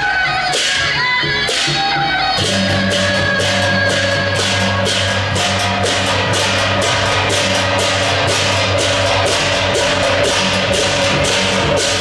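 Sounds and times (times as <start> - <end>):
drum: 0.0 - 12.0
hand cymbals clashing: 0.1 - 12.0.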